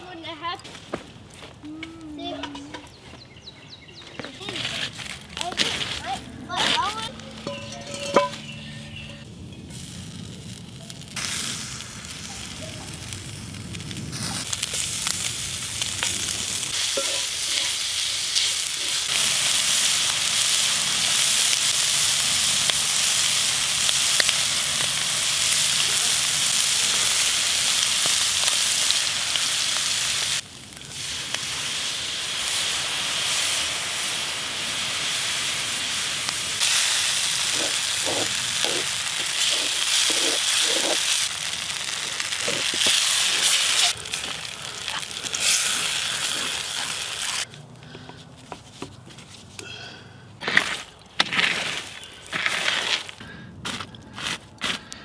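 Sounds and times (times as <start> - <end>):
meat sizzling in a skillet: 9.7 - 47.5.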